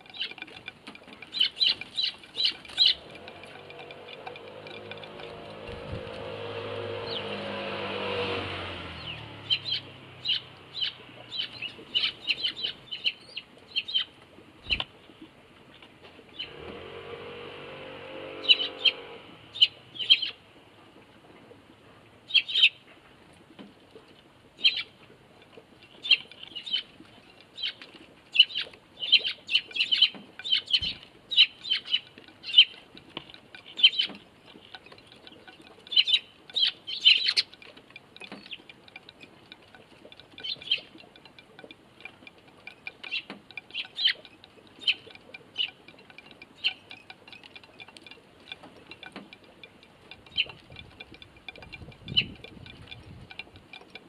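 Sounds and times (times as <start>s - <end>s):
sparrows chirping: 0.1s - 6.4s, 7.0s - 7.6s, 8.9s - 14.8s, 15.7s - 16.6s, 18.4s - 20.4s, 22.3s - 22.8s, 24.6s - 25.0s, 25.8s - 41.8s, 42.5s - 53.2s
engine hum passing: 1.3s - 13.2s, 16.3s - 22.4s, 28.5s - 54.0s
motorbike engine: 2.8s - 10.4s.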